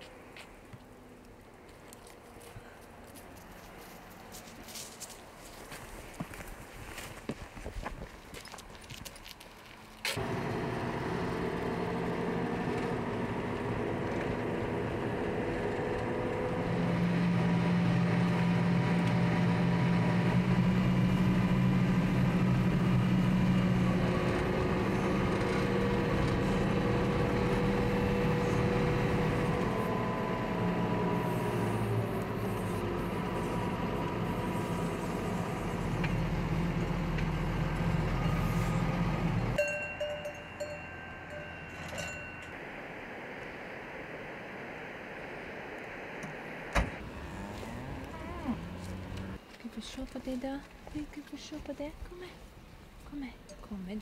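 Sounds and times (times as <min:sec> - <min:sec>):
engine running steadily: 0:10.2 - 0:49.5.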